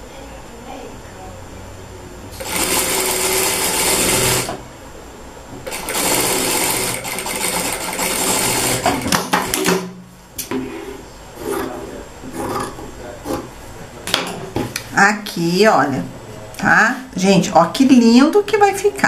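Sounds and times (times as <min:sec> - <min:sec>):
sewing machine stitching: 0:02.4 - 0:04.6, 0:05.7 - 0:09.7.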